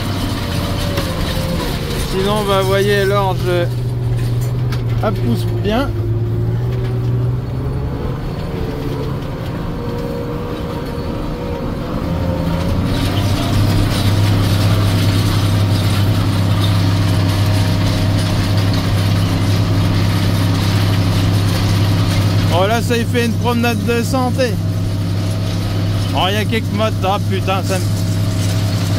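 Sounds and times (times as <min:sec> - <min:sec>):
gear whine: 0:00.0 - 0:28.9
tractor engine running: 0:00.0 - 0:28.9.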